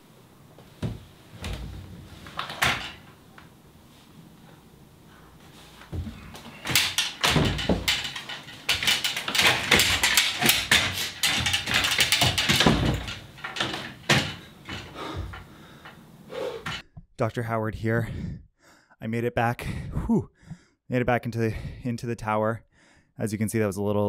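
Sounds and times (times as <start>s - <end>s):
clothes brushing against frame: 0.4s - 6.7s
metal ladder rattling: 0.7s - 3.5s, 5.2s - 16.8s
boots landing on ladder rungs: 5.4s - 15.5s.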